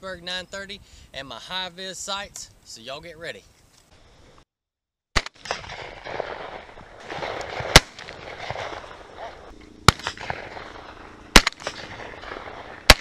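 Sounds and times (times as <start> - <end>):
shotgun blasts: 5.2 - 13.0
steady noise haze: 7.8 - 13.0.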